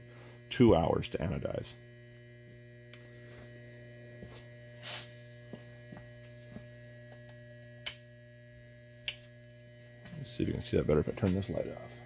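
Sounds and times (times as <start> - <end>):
battery charger mains hum: 0.0 - 12.0.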